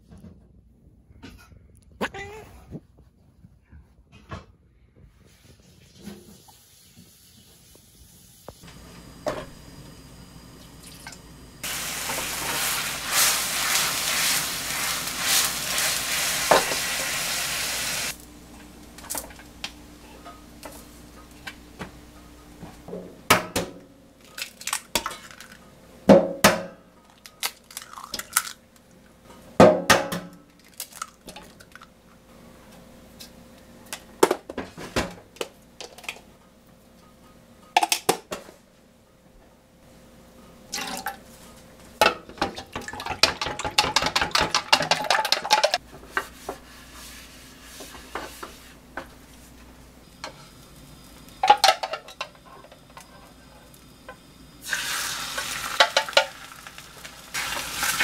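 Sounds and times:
eggs cracking: 27.1 - 28.6
eggs being beaten: 42.6 - 45.8.

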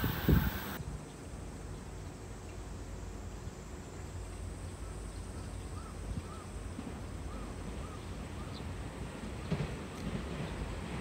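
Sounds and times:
bird calling in the distance: 4.8 - 6.6.

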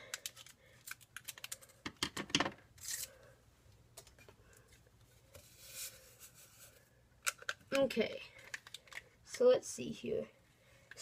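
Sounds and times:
packet rustling: 0.0 - 2.1, 5.8 - 9.2.

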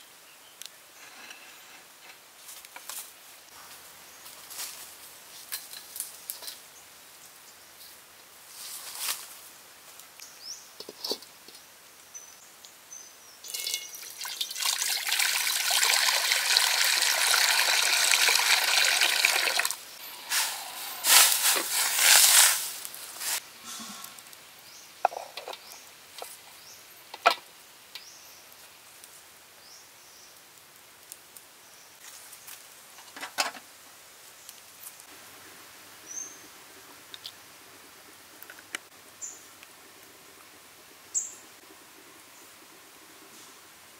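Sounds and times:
water splashing: 13.5 - 19.8
water pouring into a wok: 13.5 - 20.5.

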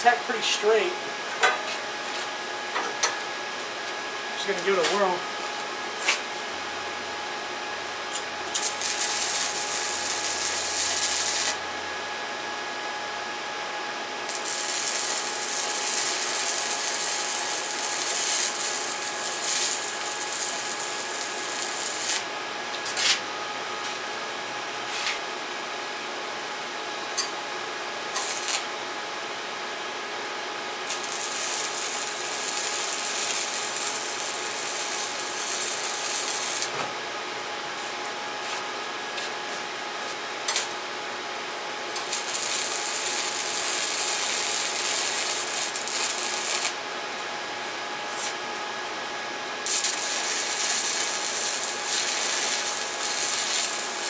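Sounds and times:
welding arc crackling and hissing: 0.0 - 0.9, 8.1 - 11.9, 14.2 - 23.2, 28.1 - 28.7, 30.8 - 36.7, 41.9 - 46.8, 48.1 - 48.4, 49.6 - 54.0.

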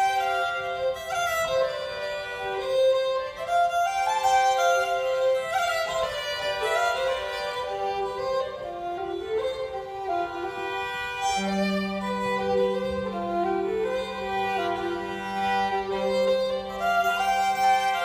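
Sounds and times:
fiddle drone note: 0.0 - 18.0
fiddle melody: 0.0 - 18.0.

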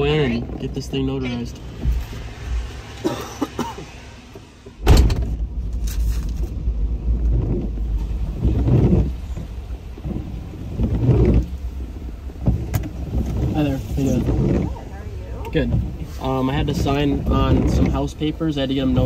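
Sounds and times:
truck rumbling on road: 0.0 - 19.0
truck door shutting: 4.4 - 6.6, 7.2 - 18.1.

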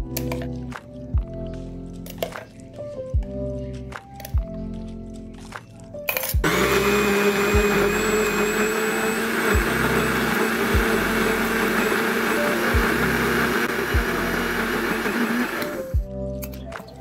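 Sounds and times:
blender motor whirring: 6.4 - 16.0.

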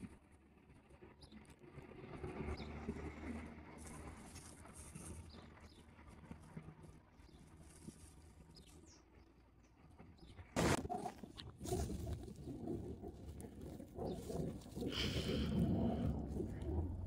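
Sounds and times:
low rumble of wind or traffic: 0.0 - 17.0.

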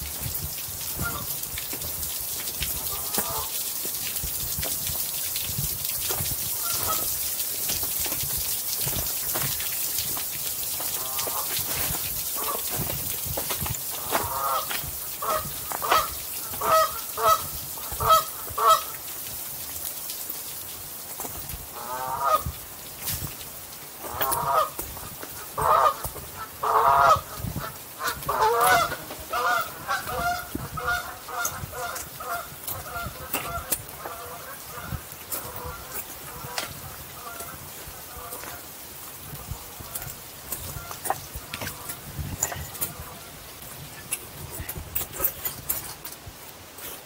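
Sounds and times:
geese honking: 2.9 - 3.6, 6.6 - 7.1, 11.0 - 11.6, 12.4 - 12.7, 14.0 - 18.9, 21.8 - 22.4, 25.6 - 27.3, 28.0 - 36.6.

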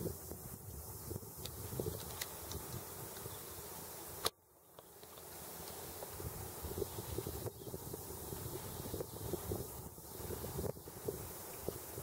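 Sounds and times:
wind buffeting microphone: 0.0 - 3.5, 6.1 - 12.0.

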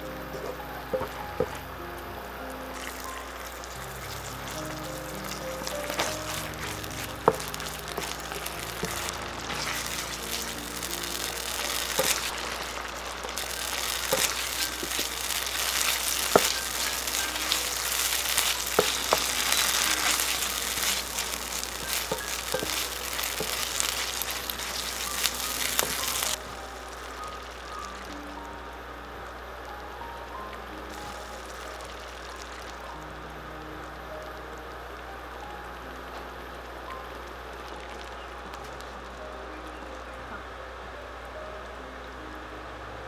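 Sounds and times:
sauce sizzling in a pan: 0.0 - 33.0.

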